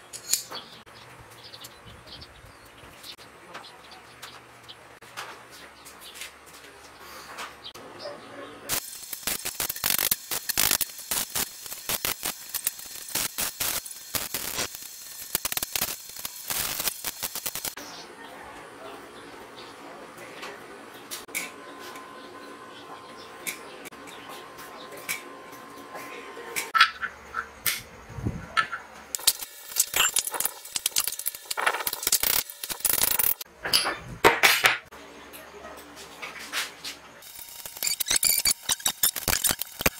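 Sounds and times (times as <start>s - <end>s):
metal tool clinking and scraping: 0.0s - 0.6s
welding arc crackling: 8.7s - 17.8s, 29.1s - 33.5s, 37.2s - 39.9s.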